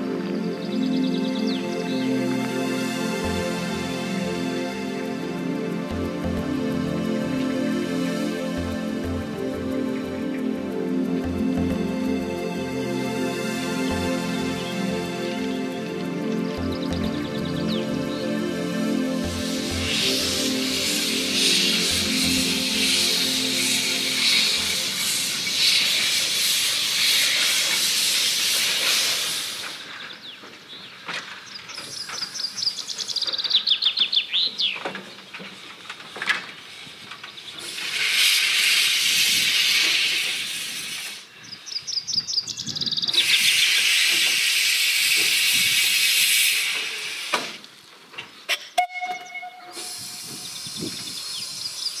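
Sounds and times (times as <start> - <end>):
steam locomotive chuffs: 3.1 - 30.2, 36.7 - 41.3, 43.2 - 47.6, 48.8 - 51.9
steam whistle note: 18.9 - 29.6, 48.8 - 50.9
steam hiss from drain cocks: 19.2 - 30.1, 36.6 - 41.4, 43.2 - 47.8, 49.7 - 52.0.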